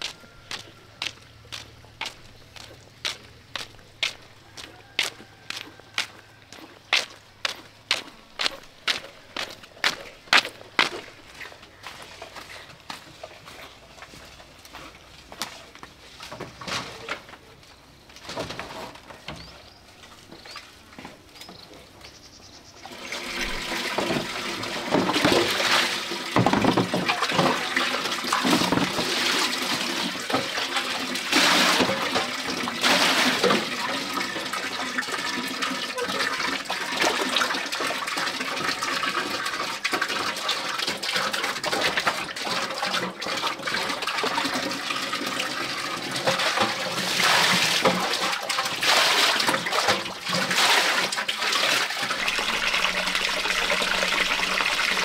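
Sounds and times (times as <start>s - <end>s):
water splashing and sloshing: 0.0s - 17.5s, 22.8s - 55.0s
water pouring into basin: 22.8s - 55.0s
water running from pipe into pot: 22.8s - 55.0s.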